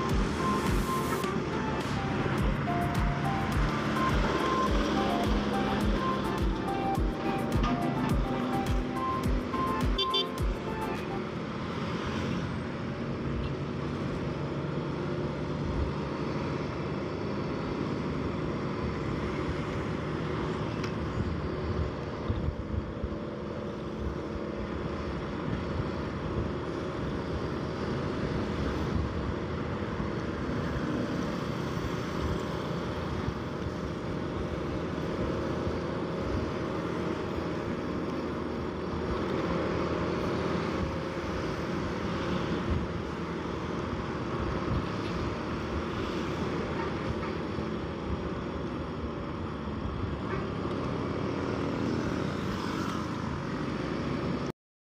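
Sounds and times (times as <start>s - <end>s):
motorcycle engine running: 0.0s - 10.7s
road and traffic noise: 0.0s - 54.6s.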